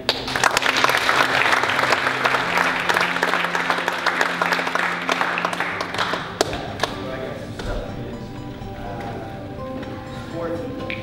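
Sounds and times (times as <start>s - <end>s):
audience applauding: 0.0s - 7.3s.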